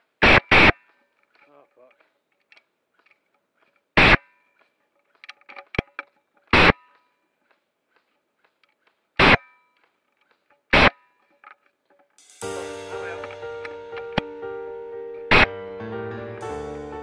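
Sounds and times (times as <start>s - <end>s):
airsoft gun bursts: 0.1s - 1.0s, 4.0s - 4.3s, 6.5s - 7.0s, 9.2s - 11.1s.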